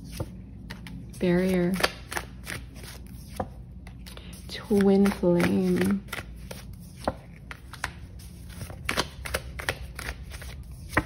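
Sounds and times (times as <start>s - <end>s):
cards sliding and tapping: 4.7s - 11.0s.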